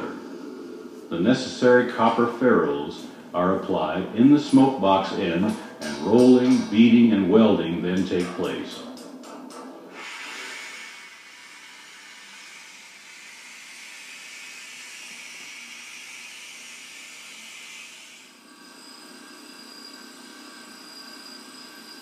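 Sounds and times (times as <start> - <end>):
air-driven tool hissing: 0.0 - 3.3, 9.8 - 22.0
faint high whine: 0.0 - 22.0.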